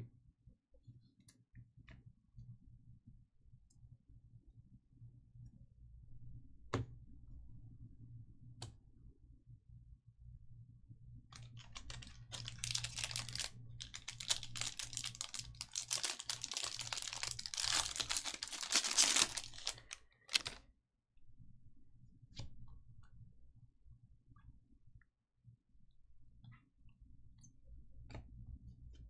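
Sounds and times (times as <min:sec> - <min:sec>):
cards rustling: 0:11.4 - 0:20.6
foil wrappers tearing and crinkling: 0:11.4 - 0:20.6.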